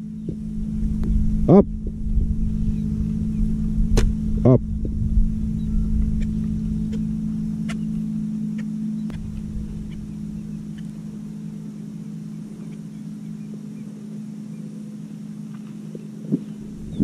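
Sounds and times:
wind rumble on microphone: 0.0 - 8.2, 9.0 - 11.4, 15.9 - 17.0
low motor hum: 0.0 - 17.0
rising and falling calls: 5.4 - 14.8.

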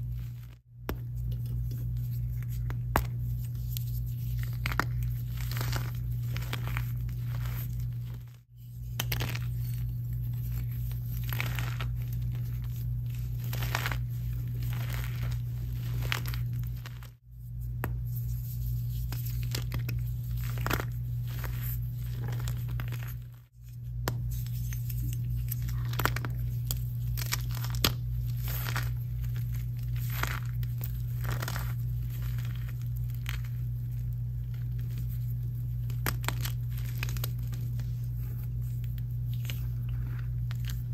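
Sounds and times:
steady low hum: 0.0 - 40.9
chalk crunching in hands: 1.2 - 17.2.

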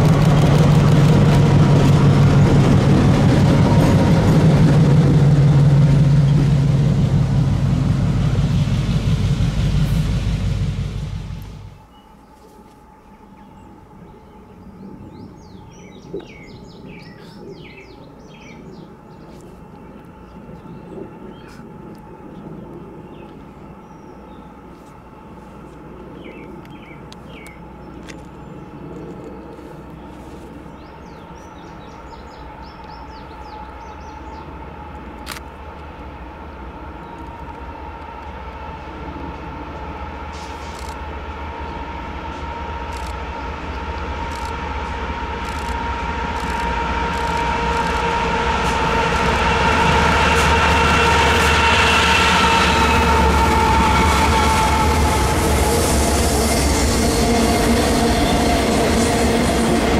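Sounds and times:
train wheel clatter: 0.0 - 11.8, 42.8 - 59.9
diesel locomotive engines: 0.0 - 59.9.

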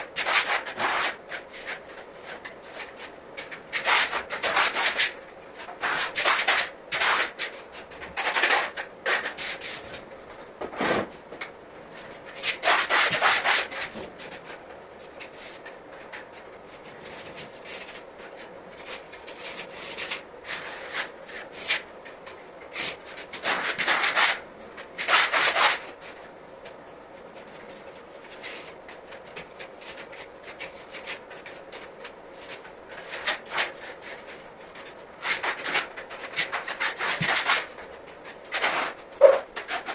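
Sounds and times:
trowel scraping plaster on wall: 0.2 - 2.9, 3.7 - 9.9, 12.4 - 14.0, 22.7 - 24.4, 25.0 - 26.0, 32.4 - 37.8.

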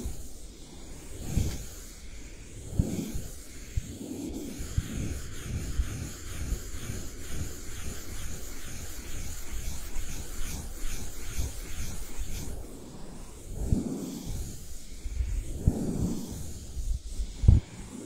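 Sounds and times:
brush rubbing on microphone: 0.0 - 18.0
brush bumping microphone: 2.7 - 12.6.

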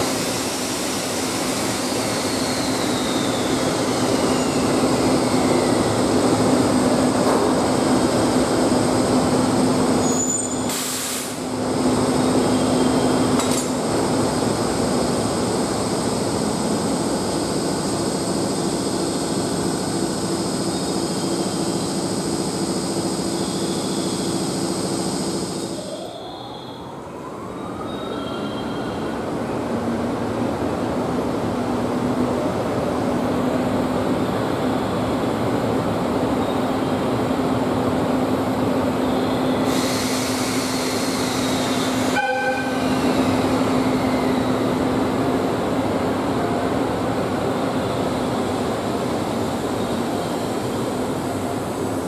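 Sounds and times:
electric locomotive hum and whine: 0.0 - 52.0
short air hiss: 10.6 - 11.5, 39.6 - 42.2.

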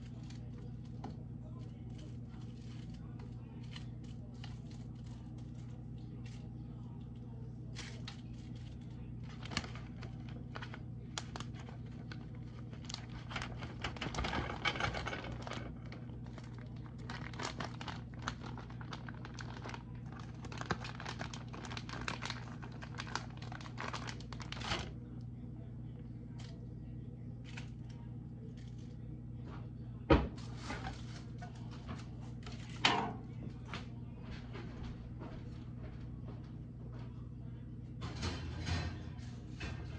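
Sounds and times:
plastic packaging crinkling: 0.0 - 6.5, 7.7 - 25.0
steady low hum: 0.0 - 39.9.

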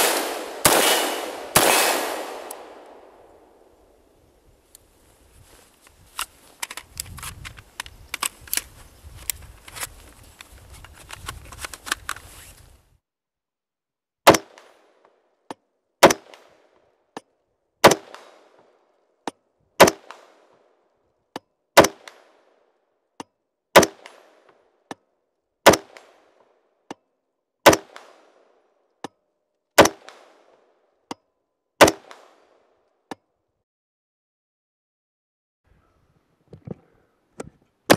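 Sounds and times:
fainter distant gunshots: 0.0 - 3.6
rifle shots with echo: 0.0 - 3.7
rifle handling clicks and rattles: 5.8 - 12.4.

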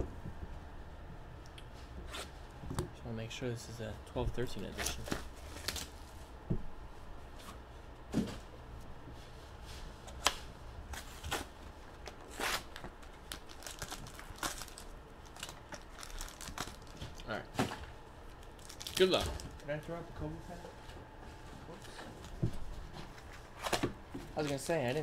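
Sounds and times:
cardboard and wrapping rustling: 4.6 - 6.3, 10.9 - 25.0.

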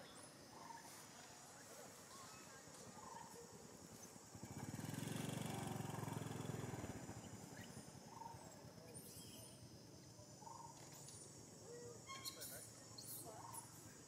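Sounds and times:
engine passing by: 4.2 - 8.3
faint short chirp: 12.0 - 13.6.

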